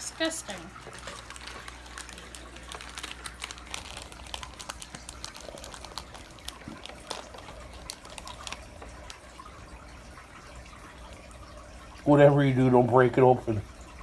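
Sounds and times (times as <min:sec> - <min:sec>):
plastic wrapping crinkling: 0:00.4 - 0:09.9.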